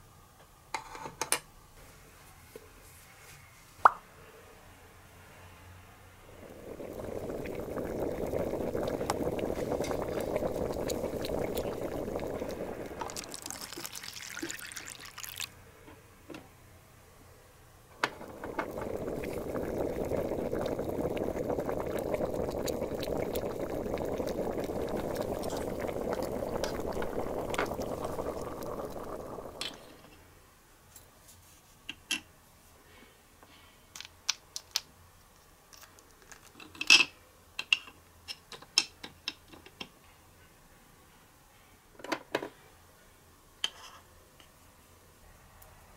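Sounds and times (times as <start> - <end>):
pot simmering and bubbling: 6.2 - 15.6, 18.0 - 30.1.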